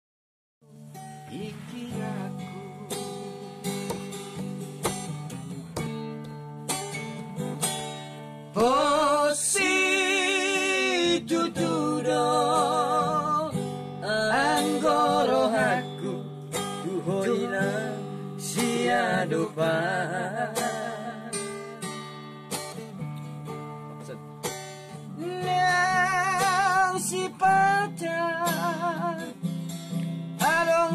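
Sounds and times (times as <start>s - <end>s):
acoustic guitar strumming: 0.6s - 30.9s
man singing with vibrato: 1.2s - 3.7s, 8.6s - 22.0s, 25.2s - 29.4s, 30.4s - 30.9s.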